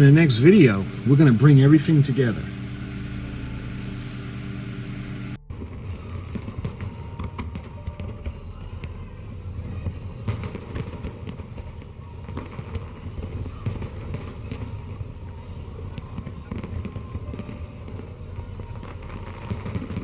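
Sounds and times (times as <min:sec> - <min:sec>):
low rumble: 0:00.0 - 0:10.3
fireworks popping and crackling: 0:05.5 - 0:20.0.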